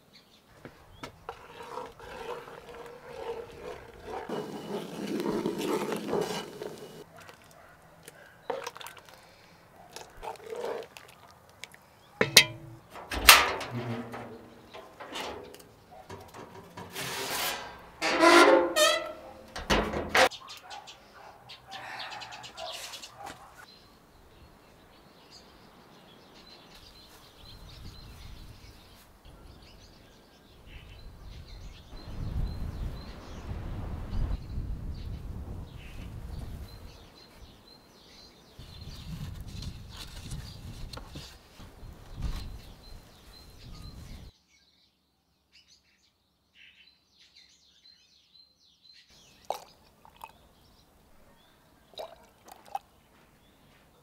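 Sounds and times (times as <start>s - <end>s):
metal cookware clinking: 12.2s - 20.3s
ringing metallic scrape: 12.2s - 20.3s
birds chirping: 18.2s - 39.3s.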